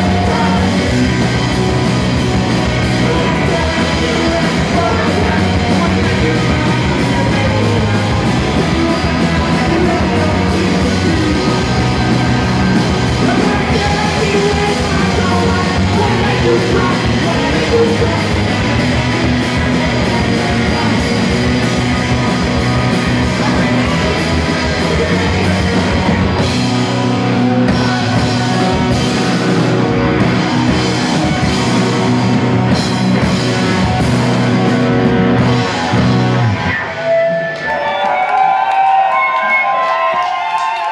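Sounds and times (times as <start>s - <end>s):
live rock band playing: 0.0s - 40.9s
woman singing: 13.2s - 18.3s.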